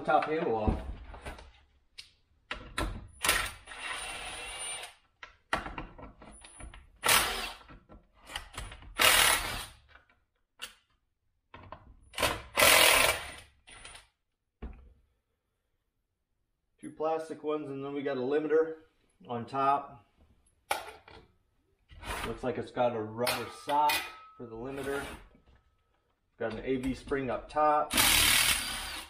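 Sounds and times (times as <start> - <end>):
cordless drill bursts: 9.0 - 9.7, 12.6 - 13.4, 27.9 - 29.0.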